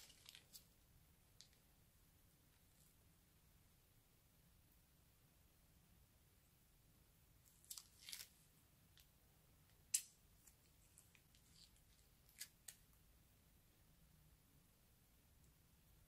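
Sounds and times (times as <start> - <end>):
plastic piping bags crinkling: 0.0 - 0.7, 7.5 - 9.1, 9.9 - 12.8.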